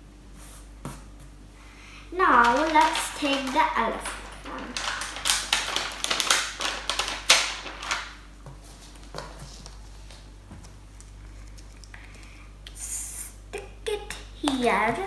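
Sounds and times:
plastic sticker sheet crackling: 2.2 - 8.2.

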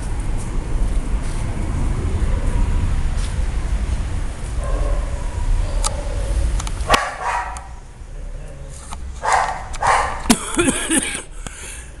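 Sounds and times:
dog barking: 4.6 - 5.2, 6.9 - 7.8, 9.2 - 10.3
dog yelping: 4.6 - 7.8, 9.2 - 10.3.

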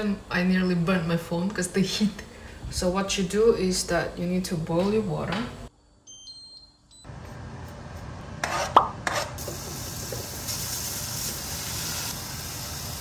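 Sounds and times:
meat sizzling in a frying pan: 9.4 - 13.0.

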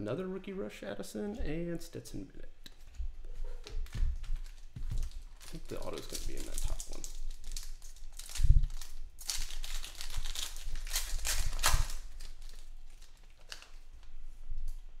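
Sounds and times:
foil wrappers crinkling and tearing: 3.6 - 14.8
cards rustling: 3.8 - 14.0.

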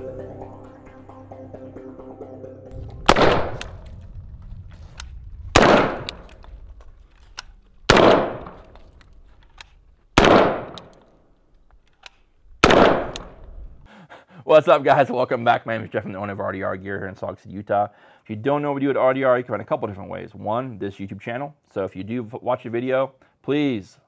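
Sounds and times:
gunshots with short echo: 2.7 - 4.1, 4.9 - 6.7, 7.8 - 8.9, 10.2 - 11.0, 12.6 - 13.4.

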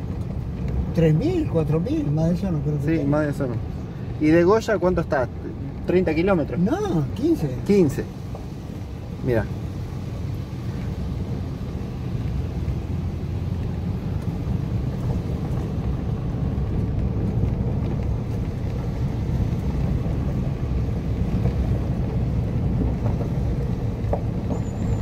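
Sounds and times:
car engine running: 0.0 - 25.0
tyre noise on dirt road: 0.0 - 25.0.

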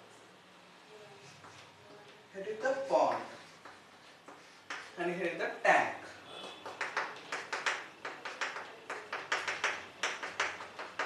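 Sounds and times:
drawing taps on a board: 3.1 - 5.0, 6.4 - 11.0.

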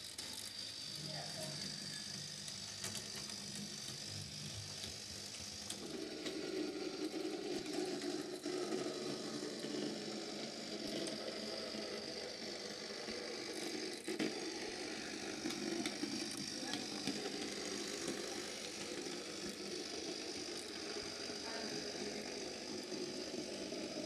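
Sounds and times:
small electric motor whirring: 0.0 - 24.0.

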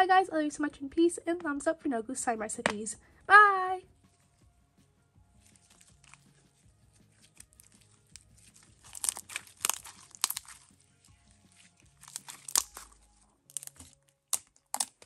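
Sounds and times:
slime squished by hands: 5.4 - 15.0.

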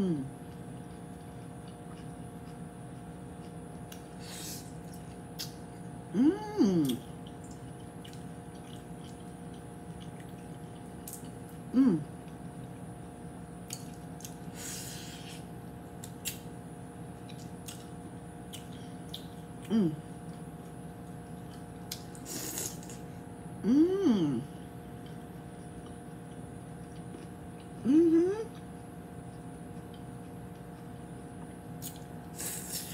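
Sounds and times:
person humming mm: 0.0 - 0.4, 6.1 - 7.0, 11.7 - 12.1, 19.6 - 20.0, 23.6 - 24.6, 27.8 - 28.5
clicks and lip smacks: 5.4 - 5.6.

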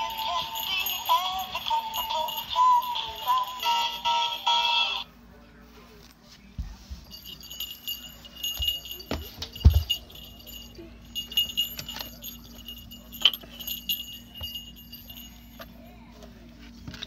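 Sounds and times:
jingling bells: 0.0 - 5.1, 7.0 - 16.0
handling knocks and rustles: 6.0 - 17.0.

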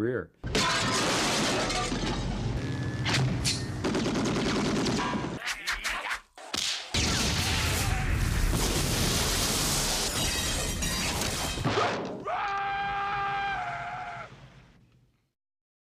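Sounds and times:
loud crashing noise: 7.0 - 11.9.

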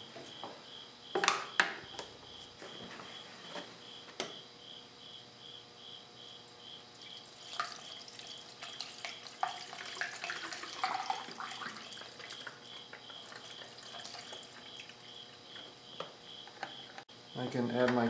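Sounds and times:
liquid gurgling and splashing: 7.1 - 15.0.

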